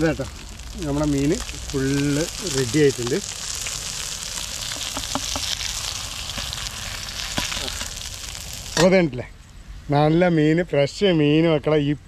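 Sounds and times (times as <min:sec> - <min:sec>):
fish sizzling in hot oil: 0:00.0 - 0:08.9
oil popping: 0:00.0 - 0:09.0.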